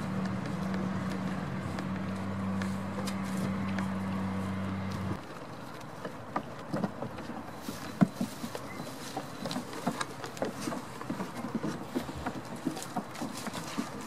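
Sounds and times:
goat hooves on plywood boards: 0:00.0 - 0:14.0.

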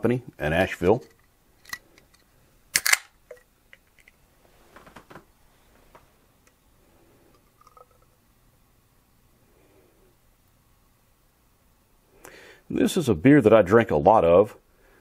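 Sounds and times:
can handling sounds: 0:01.0 - 0:04.2
can pull-tab cracking open with hiss: 0:02.8 - 0:03.1.

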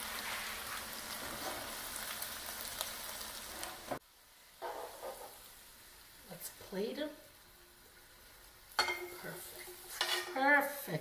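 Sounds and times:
greens sizzling in oil: 0:00.0 - 0:11.0
tongs moving greens in pan: 0:08.7 - 0:11.0.

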